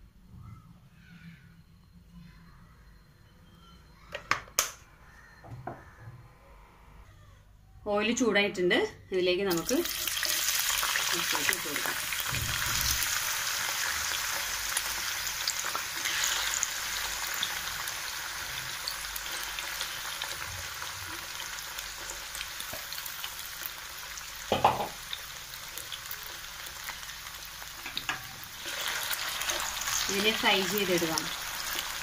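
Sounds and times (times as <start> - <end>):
potatoes sizzling in oil: 9.5 - 32.0.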